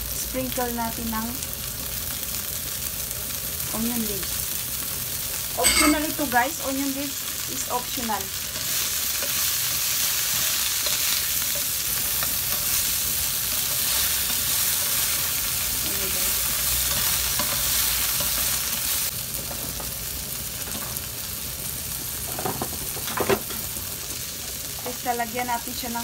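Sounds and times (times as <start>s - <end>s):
shrimp sizzling in hot oil: 0.0s - 26.0s
spatula stirring in a pan: 8.3s - 19.9s.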